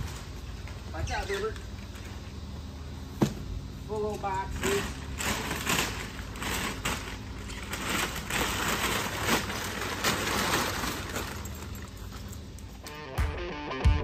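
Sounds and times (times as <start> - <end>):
foil bag crinkling: 4.2 - 12.4.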